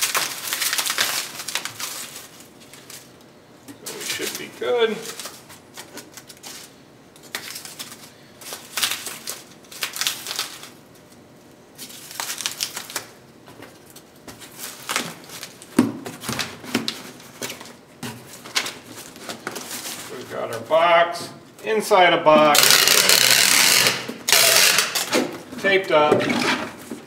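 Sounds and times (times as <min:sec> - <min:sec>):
packing peanuts rustling and squeaking: 0:00.0 - 0:03.1, 0:03.8 - 0:06.8, 0:11.8 - 0:20.7.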